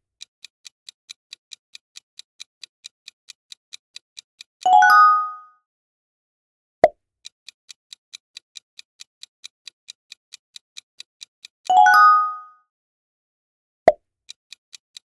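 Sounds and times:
rapid clock ticks: 0.0s - 4.8s, 7.2s - 11.8s, 14.2s - 15.0s
bright bell chime: 4.7s - 5.5s, 11.7s - 12.5s.

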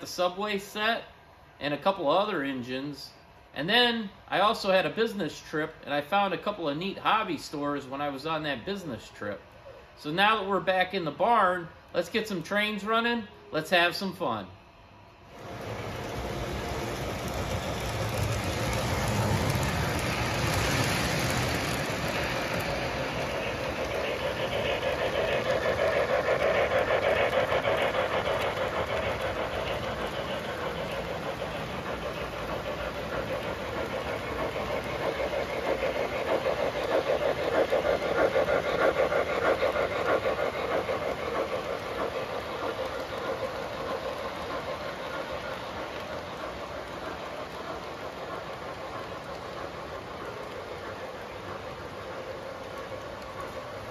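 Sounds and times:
model train rolling rumble: 15.2s - 53.9s
wheels clicking over track joints: 15.3s - 53.9s.

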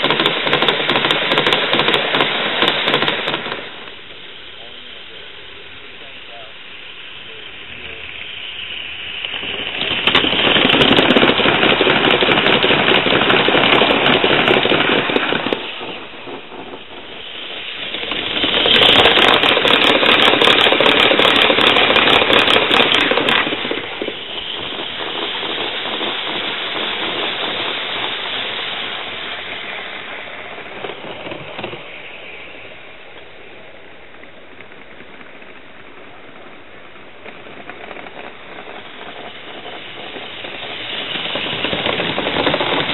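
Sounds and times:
train wheels clattering on rails: 0.0s - 3.6s
distant train rumble: 0.0s - 42.9s
steam exhaust hissing: 0.0s - 42.9s.

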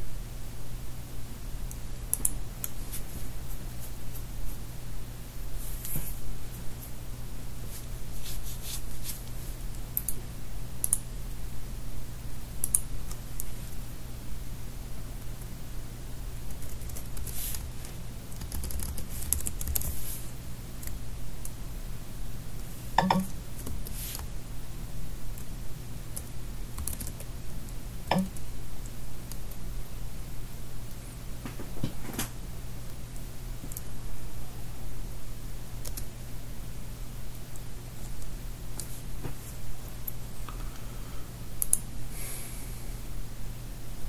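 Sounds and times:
low electrical hum: 0.0s - 44.0s
computer keyboard clicks: 12.6s - 12.9s, 18.3s - 19.9s, 26.2s - 27.3s
keyboard keys tapping: 18.4s - 19.9s, 23.0s - 23.8s, 28.1s - 28.4s.

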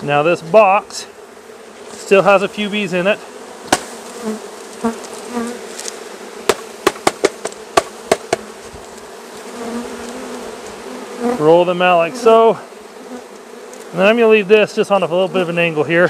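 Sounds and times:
bees buzzing: 0.0s - 16.0s
box knocking on wood: 6.5s - 8.5s.

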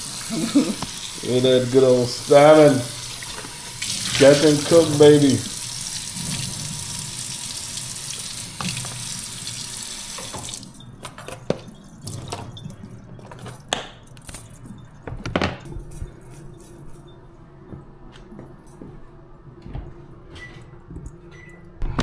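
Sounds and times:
tap running into sink: 8.5s - 10.6s.

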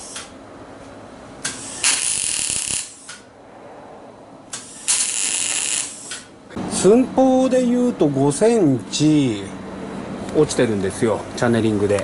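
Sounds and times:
arc welding bursts: 1.5s - 3.1s, 4.6s - 6.2s.

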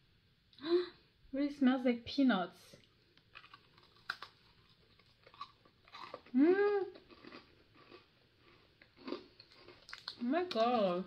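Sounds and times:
crunchy chewing: 2.8s - 11.0s
cracker cracking in bite: 3.1s - 10.6s
person humming mmm: 6.3s - 7.0s.

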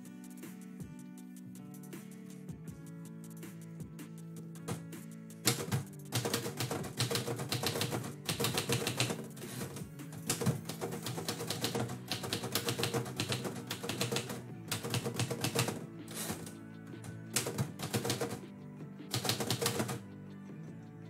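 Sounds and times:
background music: 0.0s - 21.0s
typewriter carriage return: 5.5s - 16.5s, 17.3s - 18.4s, 19.1s - 20.0s
typewriter keys clacking: 5.5s - 16.5s, 17.3s - 18.4s, 19.1s - 20.0s.

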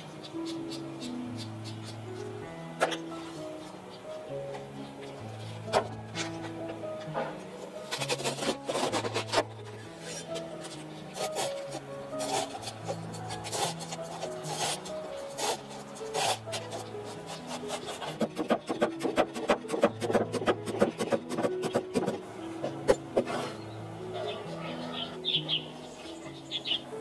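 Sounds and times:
cleaver chopping cabbage on wood: 7.9s - 9.5s, 11.2s - 23.5s.

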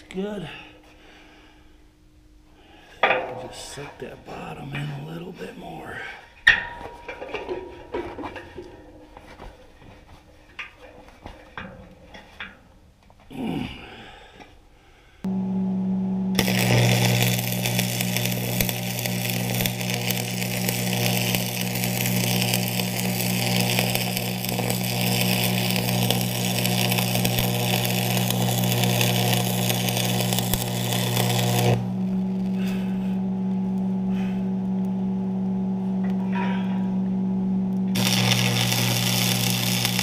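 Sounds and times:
welding machine hum: 15.3s - 36.4s, 37.7s - 40.0s
welding arc crackling and sizzling: 16.3s - 33.9s, 37.9s - 40.0s.

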